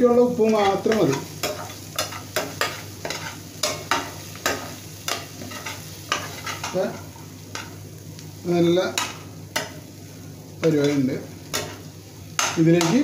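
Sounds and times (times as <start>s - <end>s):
oil sizzling: 0.0s - 13.0s
metal spatula scraping a pan: 0.4s - 7.8s.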